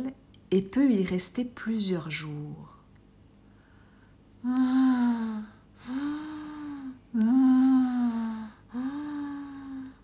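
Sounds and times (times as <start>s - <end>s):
woman imitating snoring: 4.5s - 10.0s.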